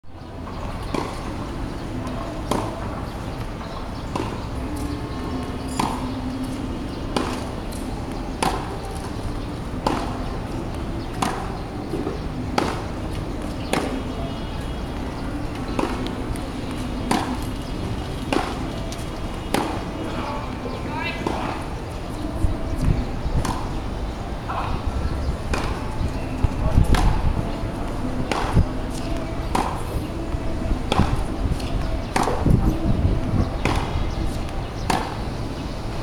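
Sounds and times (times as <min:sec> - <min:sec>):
steady background noise: 0:00.0 - 0:36.0
tennis ball struck by rackets: 0:00.8 - 0:02.8, 0:04.1 - 0:06.2, 0:07.1 - 0:09.2, 0:09.8 - 0:14.2, 0:15.4 - 0:20.1, 0:22.7 - 0:23.8, 0:24.5 - 0:29.9, 0:30.9 - 0:32.8, 0:33.6 - 0:35.3.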